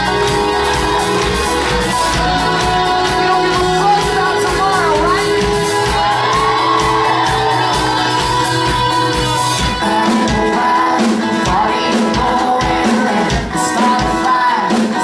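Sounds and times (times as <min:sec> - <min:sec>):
pop-rock band playing: 0:00.0 - 0:15.0
man singing: 0:01.9 - 0:05.6, 0:09.3 - 0:15.0.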